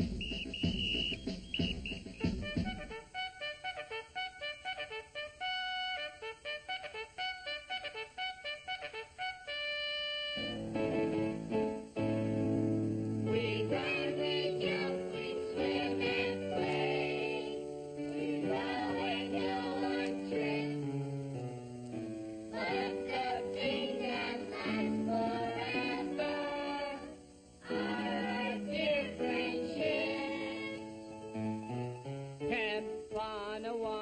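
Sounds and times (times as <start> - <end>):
instrumental backing: 0.0 - 33.7
group of young voices singing: 13.2 - 21.0, 22.5 - 31.0.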